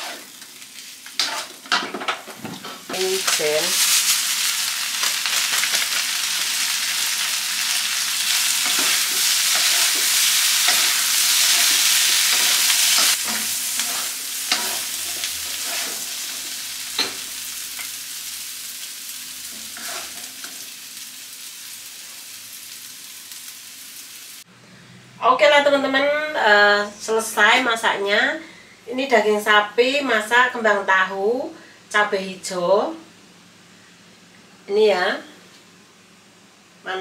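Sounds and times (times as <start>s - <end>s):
spatula stirring and scraping: 0.0s - 0.4s, 1.2s - 1.7s, 8.6s - 16.6s, 19.5s - 20.5s
food sizzling in a wok: 0.0s - 24.5s.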